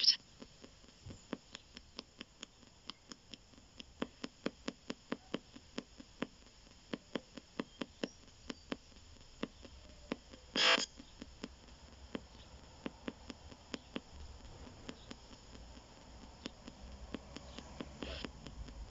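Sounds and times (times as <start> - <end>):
sharp radio clicks: 0.0 - 0.6, 8.9 - 12.5
faint radio hiss: 0.0 - 18.9.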